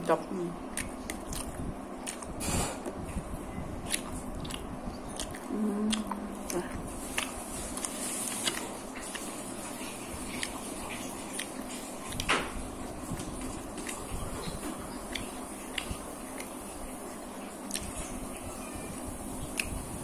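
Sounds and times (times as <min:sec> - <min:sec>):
person chewing: 0:00.6 - 0:12.3, 0:12.9 - 0:18.4, 0:19.2 - 0:19.9
mouth clicks and smacks: 0:00.7 - 0:03.0, 0:03.8 - 0:09.3, 0:13.2 - 0:16.6, 0:17.6 - 0:18.0, 0:19.5 - 0:19.8
person humming: 0:05.5 - 0:06.7.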